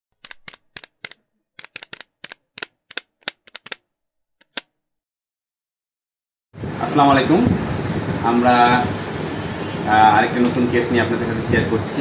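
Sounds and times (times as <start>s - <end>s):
typing key clicks: 0.2s - 3.8s.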